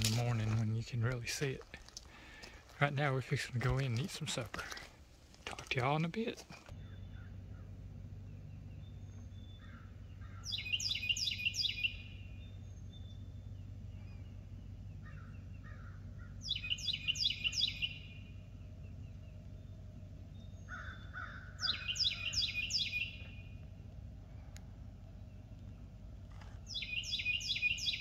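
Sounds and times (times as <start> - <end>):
steady low hum: 0.0 - 28.0
songbird singing whistled notes: 8.2 - 15.6, 16.4 - 20.7, 21.6 - 23.7, 26.6 - 28.0.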